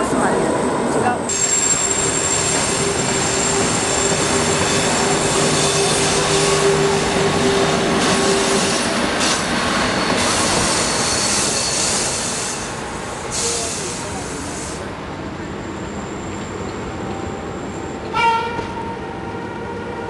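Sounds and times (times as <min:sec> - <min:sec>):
train wheels squealing on rail: 0:01.2 - 0:14.9, 0:15.5 - 0:16.8.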